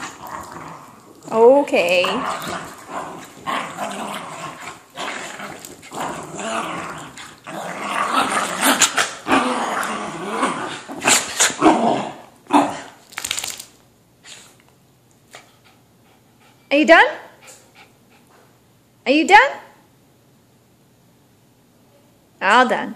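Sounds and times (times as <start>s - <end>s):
dogs growling: 0.0s - 13.0s.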